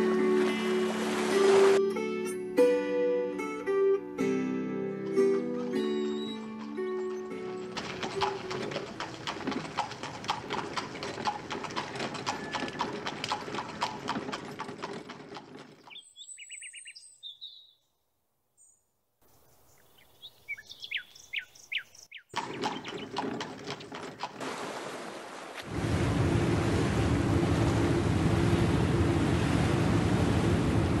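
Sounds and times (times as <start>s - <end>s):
birds chirping: 5.6s - 9.0s, 15.7s - 18.0s, 18.6s - 24.0s
horse hooves clip-clopping on street: 6.2s - 16.0s, 22.4s - 24.5s.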